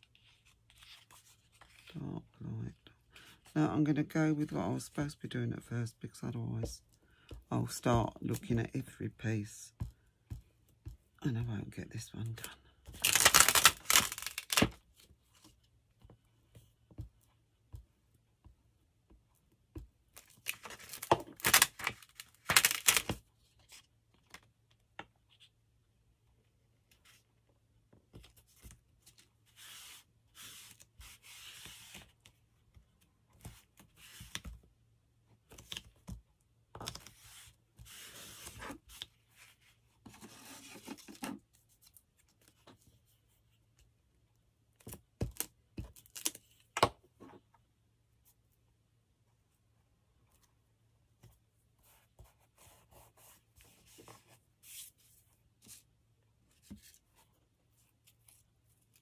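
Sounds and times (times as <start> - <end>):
paper rustling: 12.9 - 14.8
paper tearing: 13.0 - 14.7.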